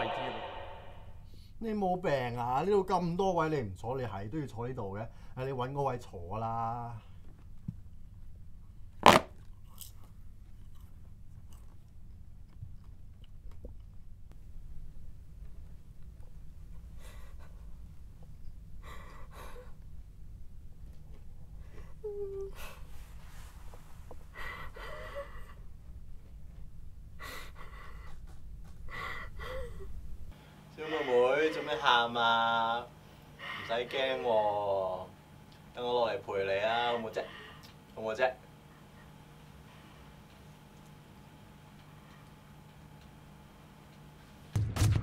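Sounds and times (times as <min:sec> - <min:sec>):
low hum: 0:00.0 - 0:01.5
steady low hum: 0:00.0 - 0:45.0
woman sobbing with gasping breaths: 0:21.7 - 0:22.9, 0:24.3 - 0:25.7, 0:27.2 - 0:28.2, 0:28.9 - 0:30.0
sharp crunching hit: 0:44.6 - 0:45.0.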